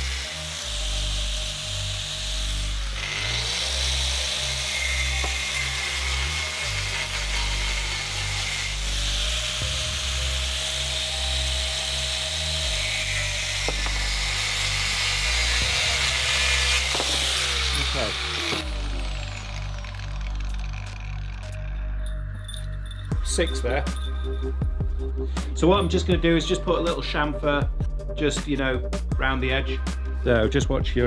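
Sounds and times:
power tool cutting steel: 0:00.0 - 0:24.6
background music with bass line: 0:00.0 - 0:31.0.

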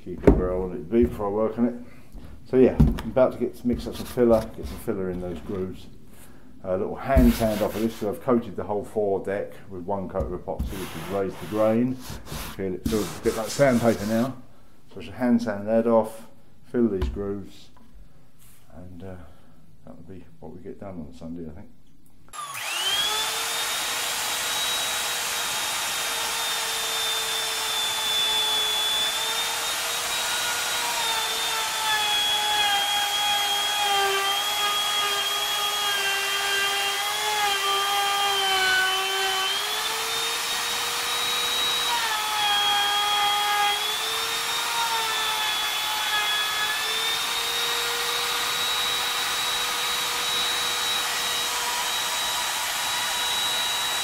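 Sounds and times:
router whining cutting wood: 0:22.3 - 0:54.0.

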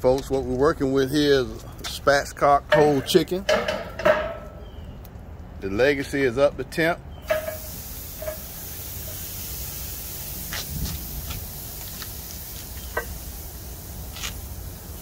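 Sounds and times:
chicken sizzling on grill: 0:07.2 - 0:15.0
sharp crackles: 0:07.2 - 0:15.0.

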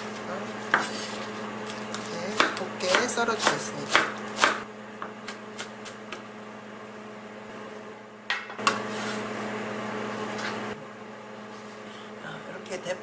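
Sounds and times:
microwave oven humming: 0:00.0 - 0:13.0
knife chopping on cutting board: 0:01.9 - 0:06.3.

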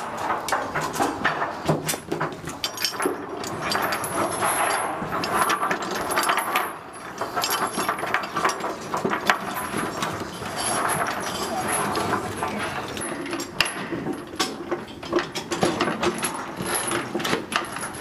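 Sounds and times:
heavy chain clinking and rattling: 0:00.0 - 0:18.0.

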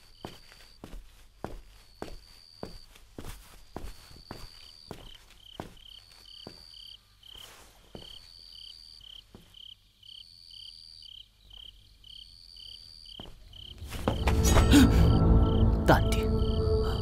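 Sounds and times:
soft footsteps: 0:00.0 - 0:08.5, 0:09.2 - 0:09.7, 0:13.2 - 0:14.6
crickets chirping: 0:00.0 - 0:17.0.

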